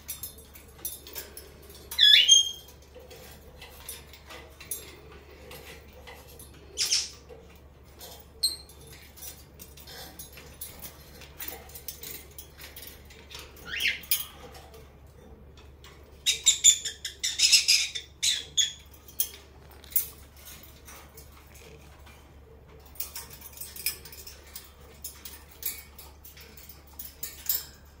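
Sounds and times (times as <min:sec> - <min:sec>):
beak clicks and feather rustles: 0:00.0 - 0:28.0
parrot squeak: 0:02.0 - 0:02.7, 0:06.8 - 0:07.1, 0:13.6 - 0:14.0, 0:16.2 - 0:18.8.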